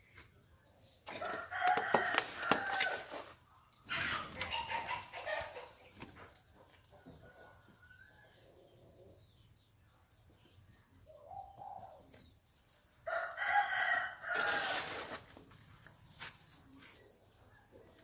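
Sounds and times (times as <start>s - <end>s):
rooster crowing: 13.1s - 15.1s.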